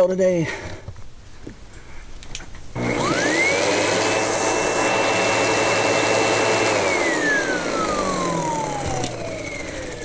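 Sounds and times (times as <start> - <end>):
vacuum cleaner motor whine: 2.8 - 10.0.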